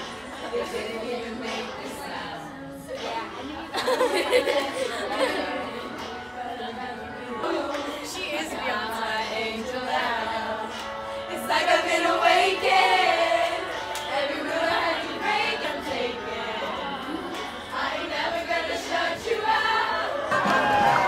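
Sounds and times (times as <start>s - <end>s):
several voices singing together: 0.0s - 21.0s.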